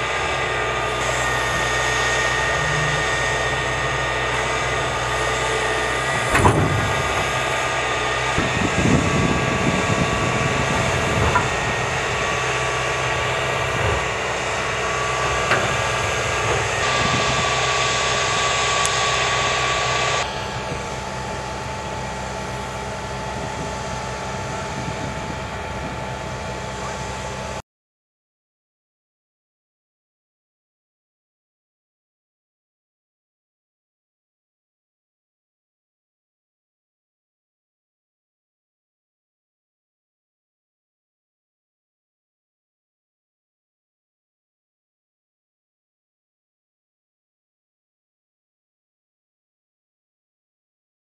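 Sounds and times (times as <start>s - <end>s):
tracked vehicle whine: 0.0s - 27.6s.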